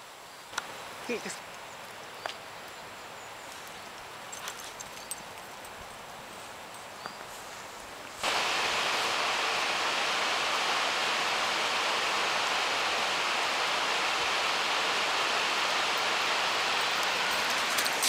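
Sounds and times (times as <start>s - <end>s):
river water rushing: 8.2s - 18.0s.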